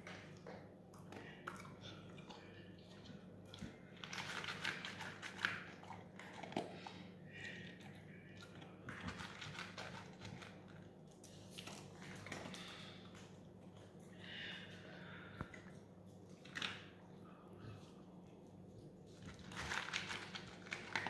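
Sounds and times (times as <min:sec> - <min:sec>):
dog crunching dry kibble: 0:04.0 - 0:06.8, 0:08.4 - 0:12.7, 0:19.2 - 0:21.0.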